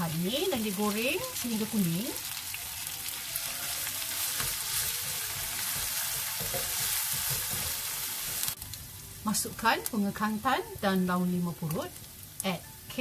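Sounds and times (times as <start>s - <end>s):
paste sizzling in hot oil: 0.0s - 12.4s.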